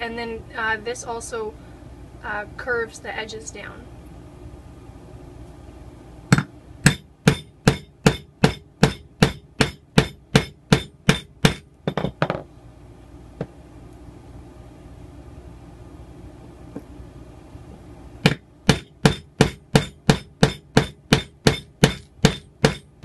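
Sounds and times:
hammer striking metal tool: 6.3s - 12.4s, 18.3s - 23.0s.

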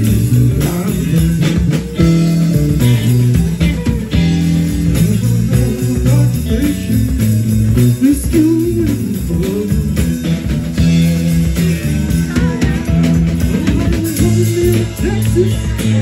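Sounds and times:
guitar lead line bending pitch: 0.0s - 8.0s
bass guitar: 0.0s - 16.0s
drum kit with cymbals: 0.0s - 16.0s
electric guitars: 0.0s - 16.0s.

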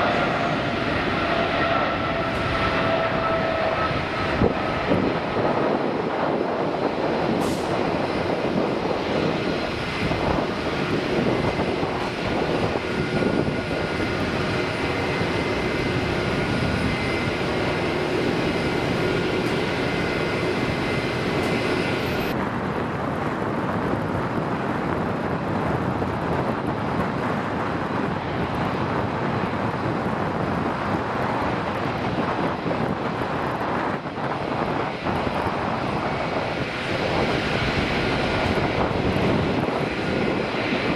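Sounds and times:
jet engine whining tones: 0.0s - 22.4s, 34.5s - 40.9s
dull steady jet noise: 0.0s - 40.9s
jet engines roaring: 0.0s - 40.9s.

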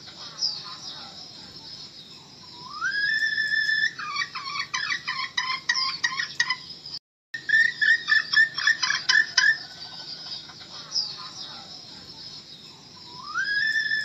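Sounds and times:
hen calling: 2.5s - 6.6s, 7.4s - 11.7s
hen clucking: 7.5s - 11.3s.

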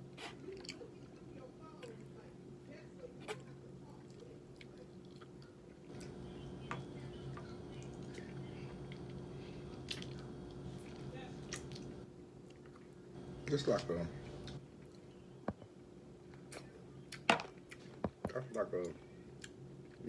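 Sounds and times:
steady low hum: 0.0s - 20.0s
person chewing chicken wings: 8.9s - 11.9s.

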